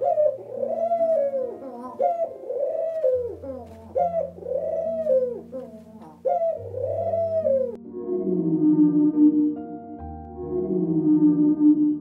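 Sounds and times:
pigeons cooing: 0.0s - 7.8s.

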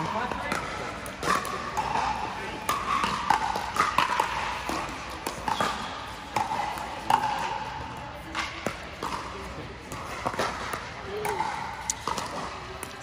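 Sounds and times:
paddles hitting plastic ball: 0.0s - 13.0s.

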